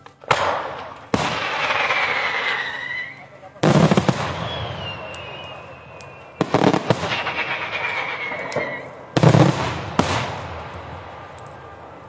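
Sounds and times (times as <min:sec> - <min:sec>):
fireworks bangs and cracks: 0:00.0 - 0:12.0
falling whistle: 0:02.0 - 0:03.3, 0:04.2 - 0:09.0.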